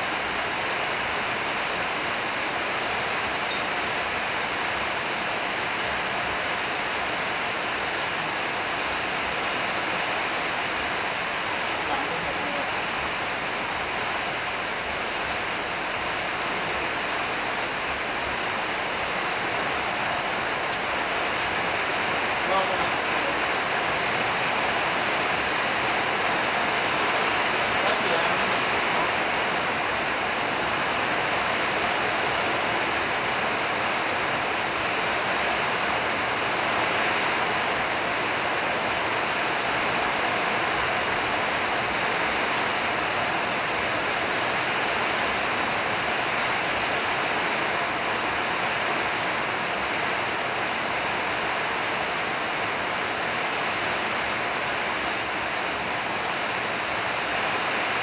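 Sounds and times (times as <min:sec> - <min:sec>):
steady rushing noise: 0:00.0 - 0:58.0.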